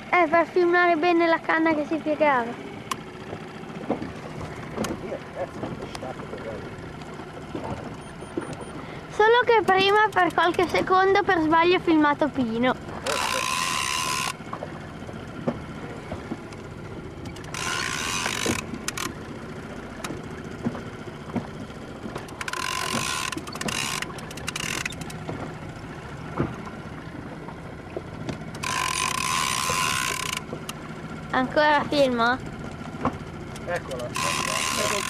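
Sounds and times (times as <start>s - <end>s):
small clicks: 9.6s - 10.8s, 17.2s - 19.2s, 22.1s - 25.5s, 28.3s - 30.8s
fishing reel whirring: 12.9s - 14.6s, 16.5s - 20.2s, 21.8s - 25.2s, 28.4s - 30.9s, 33.6s - 35.0s.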